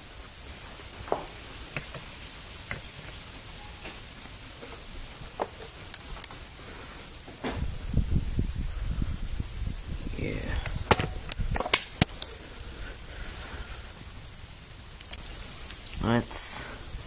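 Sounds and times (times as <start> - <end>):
faint steady hiss: 0.0 - 17.0
sharp clicks and ticks: 5.5 - 6.4, 15.0 - 16.0.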